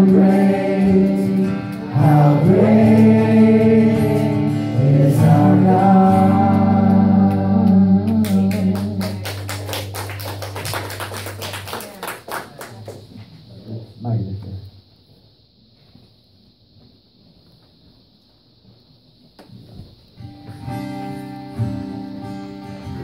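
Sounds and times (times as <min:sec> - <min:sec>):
man singing: 0:00.0 - 0:09.2
acoustic guitar strumming: 0:00.0 - 0:11.3, 0:20.2 - 0:23.0.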